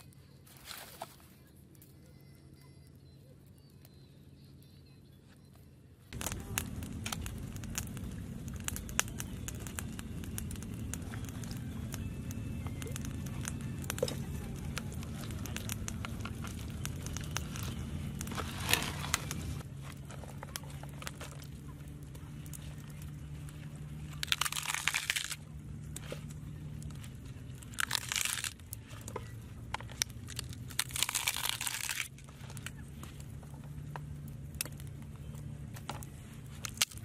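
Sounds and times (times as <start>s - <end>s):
leafy greens crinkling: 0.0s - 1.5s, 6.2s - 34.0s
low hum: 0.0s - 37.0s.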